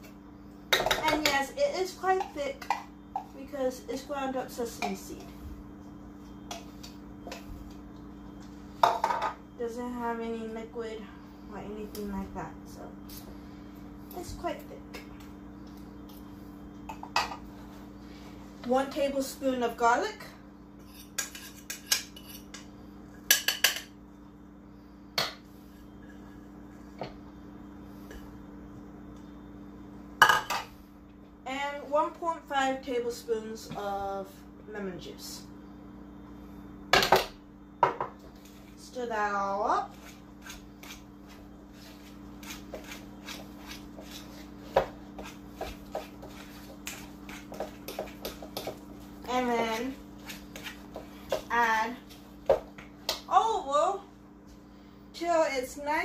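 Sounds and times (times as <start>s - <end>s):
steady low hum: 0.0s - 56.0s
utensil scraping bowl: 39.8s - 51.7s.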